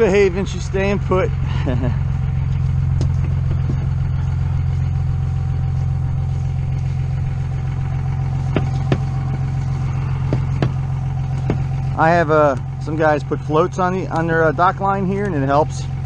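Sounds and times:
engine idling: 0.0 - 16.0
footsteps on wooden planks: 10.3 - 10.8, 11.4 - 11.7.

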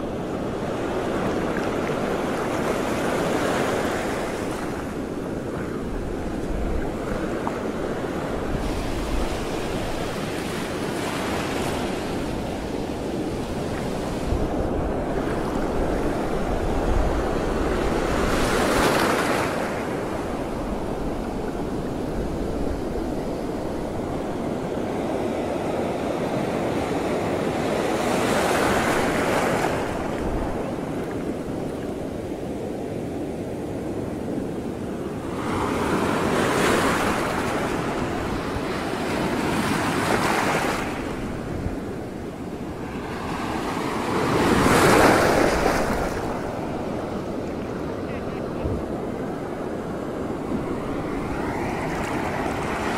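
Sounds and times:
wind on microphone: 0.0 - 52.9
sea waves washing: 34.6 - 52.9.

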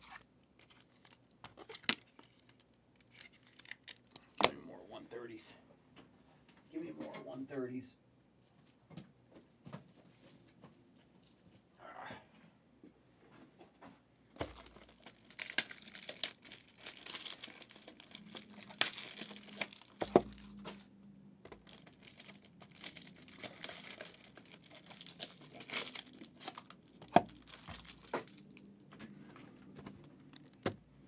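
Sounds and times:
wrappers tearing and crinkling: 0.0 - 4.4, 14.4 - 20.8, 21.5 - 28.6
cards rustling: 14.4 - 20.8, 21.5 - 28.7.

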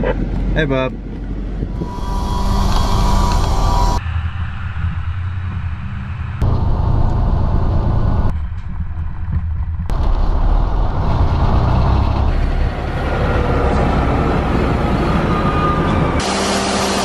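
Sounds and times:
truck engine and road rumble: 0.0 - 17.0
faint rising whine: 1.8 - 8.3.

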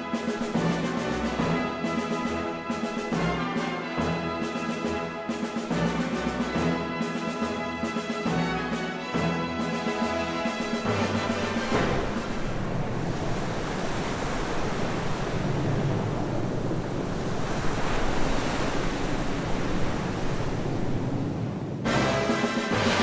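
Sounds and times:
loud rushing noise: 10.5 - 23.0.

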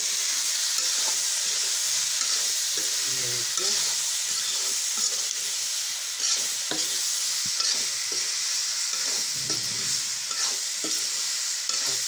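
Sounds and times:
pumpkin sizzling in a pan: 0.0 - 12.0
spatula scraping and knocking pan: 9.0 - 12.0.

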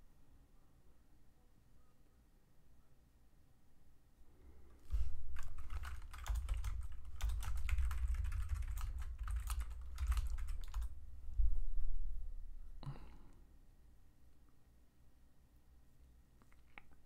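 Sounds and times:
dull low thumps: 11.2 - 12.8.

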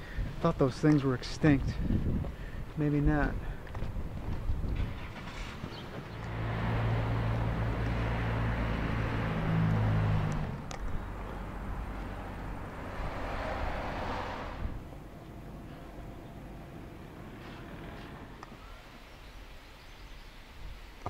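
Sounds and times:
vehicle passing on road: 4.0 - 19.3.

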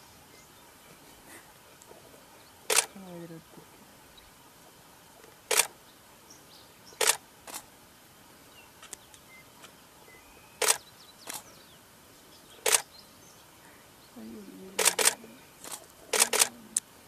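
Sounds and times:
low outdoor hiss: 0.0 - 17.0
camera shutter clicks: 2.7 - 2.9, 5.5 - 5.7, 7.0 - 7.6, 10.6 - 11.4, 12.6 - 12.9, 14.8 - 16.5.

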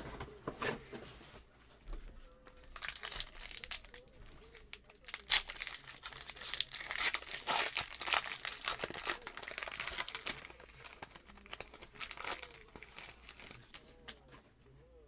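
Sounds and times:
foil wrapper crinkling and tearing: 2.6 - 14.2.

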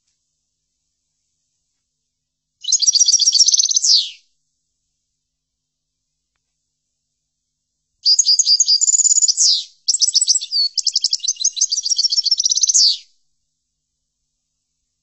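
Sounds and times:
finch twittering song: 2.6 - 4.2, 8.0 - 13.1.

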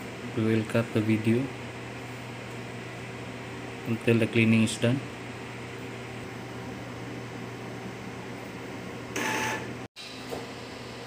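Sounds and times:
printer humming and whirring: 9.1 - 9.9.

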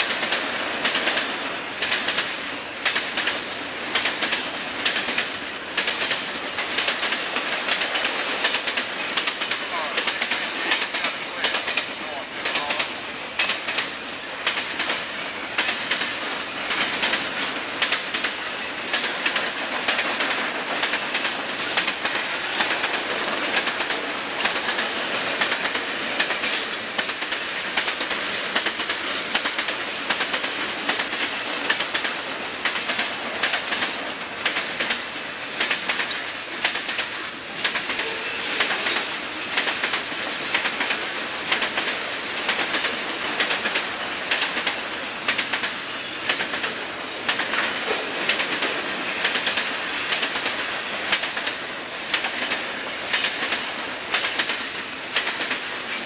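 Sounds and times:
freight train rumbling past: 0.0 - 56.0
wheels clacking over rail joints: 0.0 - 56.0
faint high wheel squeal: 37.2 - 39.3, 45.8 - 46.9.

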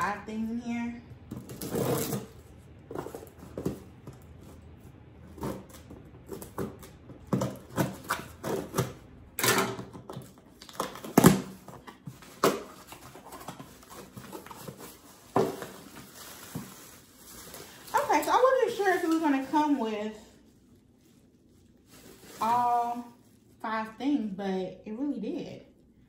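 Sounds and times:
cardboard box rustling: 1.4 - 4.6, 12.0 - 18.1.

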